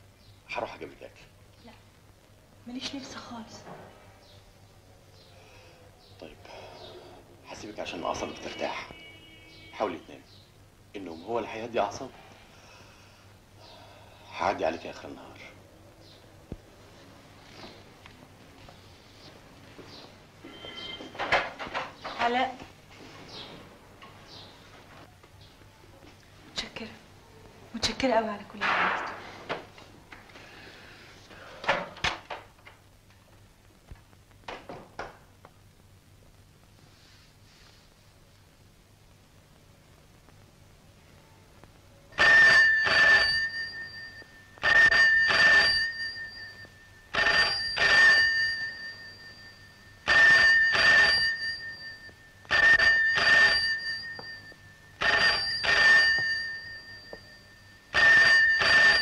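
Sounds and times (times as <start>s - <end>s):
telephone bell ringing: 20.4s - 21.5s, 42.2s - 59.0s.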